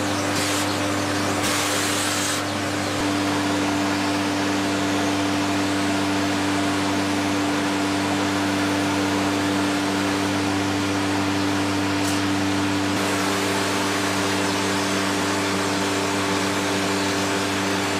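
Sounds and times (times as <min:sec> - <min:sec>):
vacuum cleaner running: 0:00.0 - 0:17.9.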